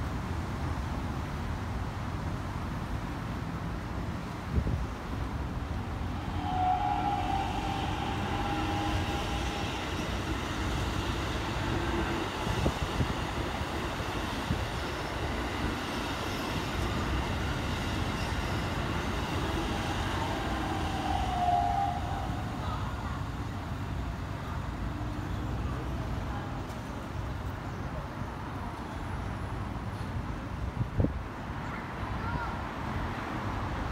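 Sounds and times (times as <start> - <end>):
train wheels rumbling on rail: 0.0 - 33.9
electric train whine: 5.0 - 26.4.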